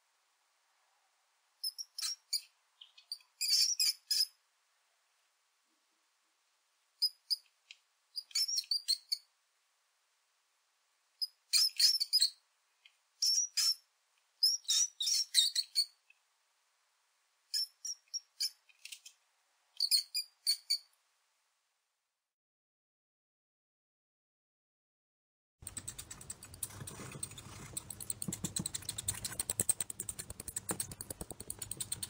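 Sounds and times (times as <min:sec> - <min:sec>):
mouse squeaks: 0:01.6 - 0:04.4, 0:07.0 - 0:07.5, 0:08.2 - 0:09.3, 0:11.2 - 0:12.4, 0:13.2 - 0:16.0, 0:17.5 - 0:19.1, 0:19.8 - 0:20.9, 0:25.6 - 0:32.0.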